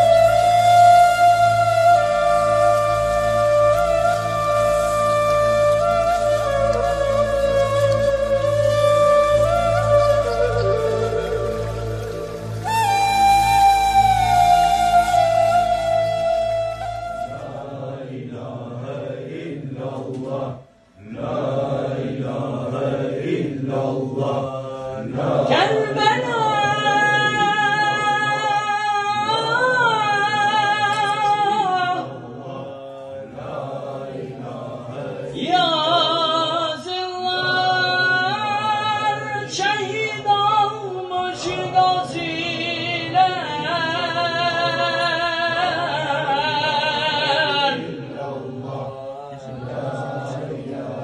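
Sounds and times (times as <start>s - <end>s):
low drone of group chanting: 17.1s - 28.6s, 29.2s - 39.3s, 41.4s - 51.0s.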